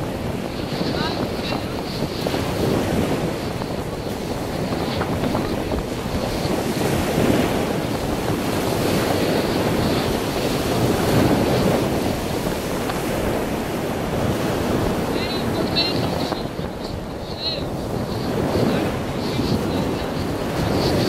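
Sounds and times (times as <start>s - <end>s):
sea surf breaking: 0.0s - 21.0s
wind buffeting microphone: 0.0s - 21.0s.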